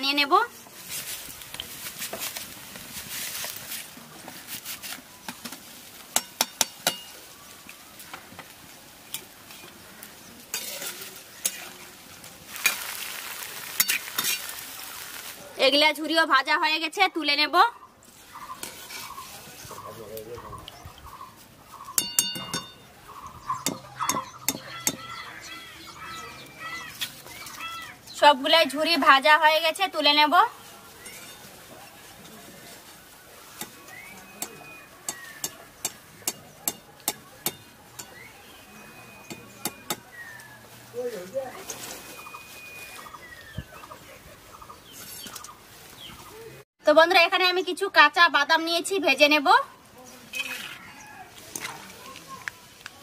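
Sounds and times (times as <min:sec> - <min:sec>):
potato frying in hot oil: 0:10.5 - 0:15.4
small birds chirping: 0:17.3 - 0:29.1, 0:29.7 - 0:46.6.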